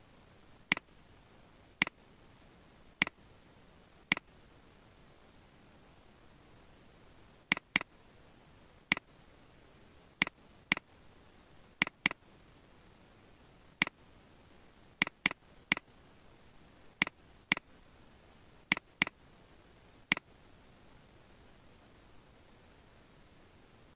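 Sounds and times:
faint hiss: 0.0 - 23.9
mouse button clicking: 7.5 - 7.9, 11.8 - 12.2, 15.0 - 15.8, 18.7 - 19.1.

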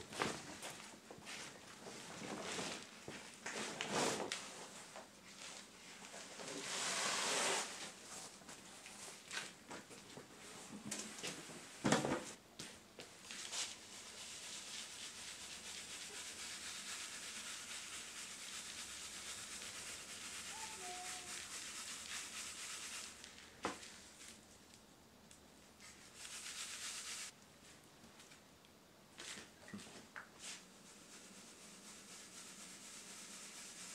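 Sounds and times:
charcoal sifting through mesh screen: 2.1 - 8.2, 13.2 - 24.4, 25.8 - 27.3, 30.4 - 33.9.

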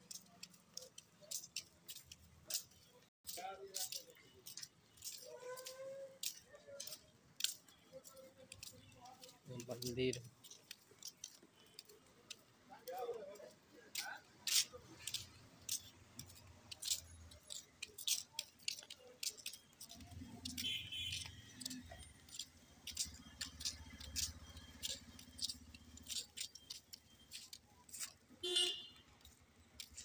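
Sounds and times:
sharp clicks and ticks: 0.0 - 30.0
vehicle engine hum: 14.7 - 30.0.

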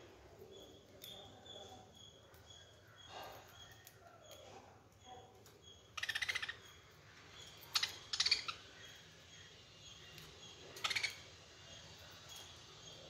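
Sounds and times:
budgerigars chattering chirps: 5.7 - 6.8, 7.4 - 9.5, 10.7 - 11.4.

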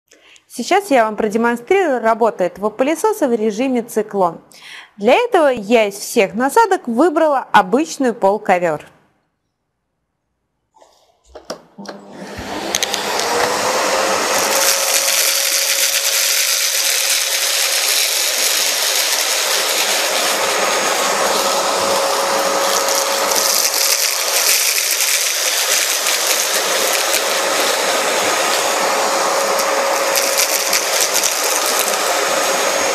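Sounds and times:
vacuum cleaner running: 11.4 - 32.9
grains rattling up vacuum tube: 22.6 - 27.8.

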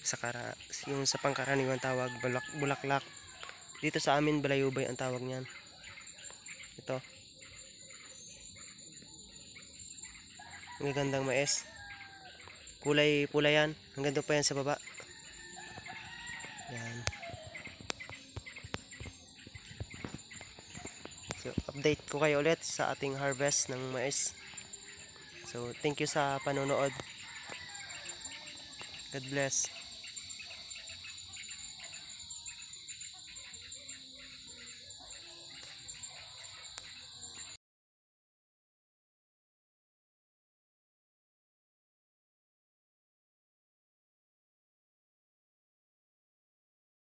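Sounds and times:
insects trilling: 0.0 - 37.6
rooster crowing: 0.8 - 3.9, 10.3 - 12.6, 15.0 - 21.8, 23.0 - 32.5.

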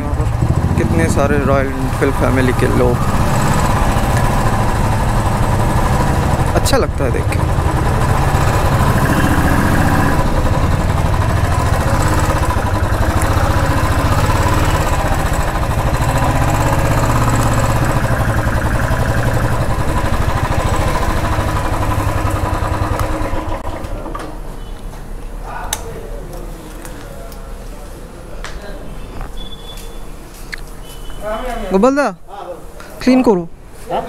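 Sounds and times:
motorcycle engine idling: 0.0 - 24.2
background street noise: 0.0 - 34.0.

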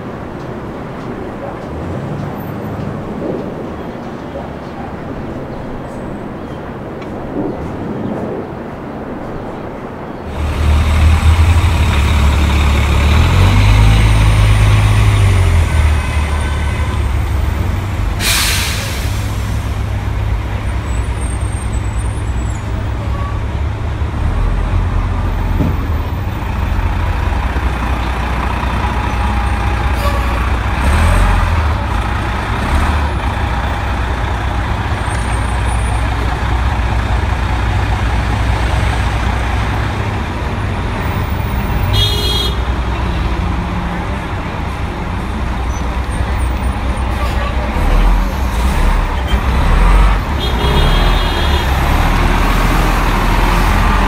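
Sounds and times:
bus engine rumbling: 0.0 - 54.0
air brake hiss: 18.2 - 19.8.

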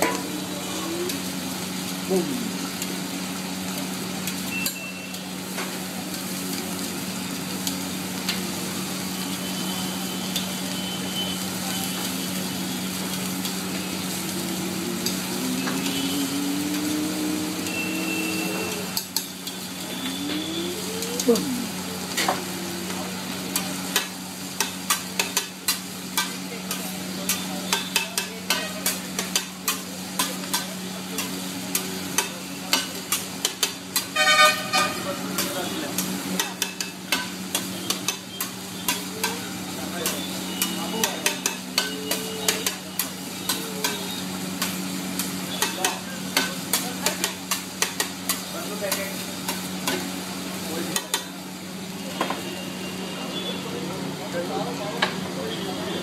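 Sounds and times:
food sizzling on a griddle: 0.0 - 56.0
metal spatulas scraping a griddle: 24.0 - 34.7.

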